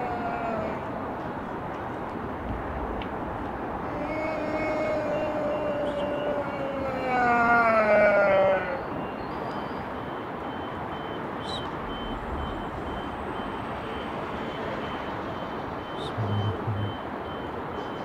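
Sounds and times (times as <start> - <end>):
high electronic beeps: 9.6 - 17.5.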